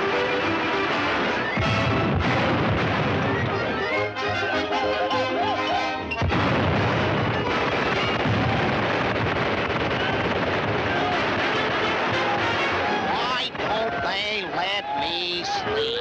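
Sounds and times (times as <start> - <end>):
orchestral cartoon music: 0.0 - 8.1
cartoon gunfire and explosions: 0.6 - 5.2, 6.1 - 13.9
sudden crash: 1.6 - 3.9, 6.2 - 12.9.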